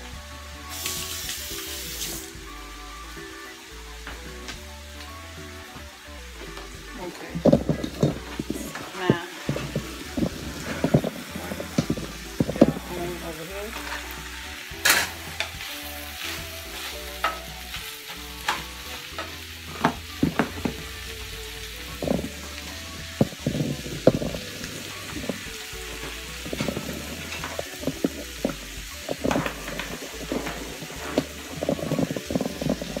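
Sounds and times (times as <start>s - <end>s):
food sizzling in a skillet: 0.0s - 33.0s
wooden spoon knocking and scraping pan: 7.2s - 14.1s, 18.4s - 21.0s, 23.1s - 33.0s.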